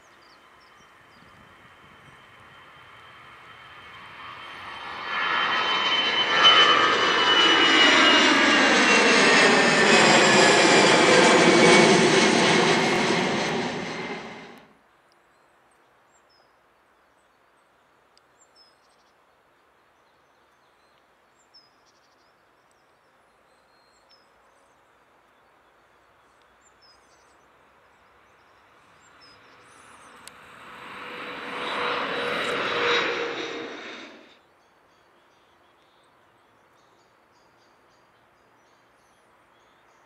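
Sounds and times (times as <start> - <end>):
jet engines on takeoff: 0.1 - 14.7, 28.2 - 34.4.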